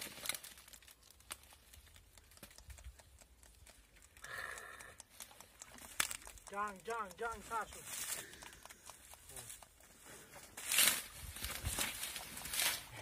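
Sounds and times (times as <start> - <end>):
dry reed stems crackling: 0.0 - 13.0
small clicks: 0.2 - 9.8.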